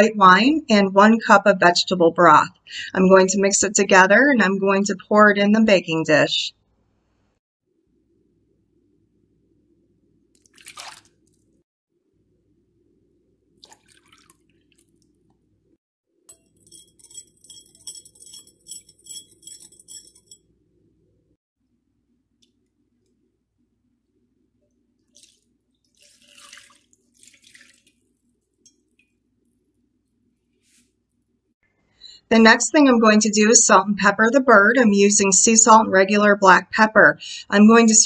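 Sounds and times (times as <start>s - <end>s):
liquid splashing: 10.3s - 11.6s, 13.6s - 15.3s, 25.0s - 29.8s
liquid pouring into glass bowl: 13.6s - 15.2s, 25.0s - 29.7s
whisk rattling against glass: 16.3s - 20.5s.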